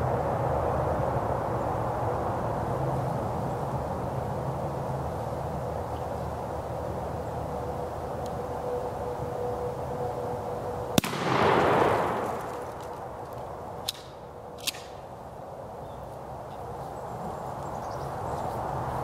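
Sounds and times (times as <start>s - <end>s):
shotgun shot: 11.0s - 12.8s.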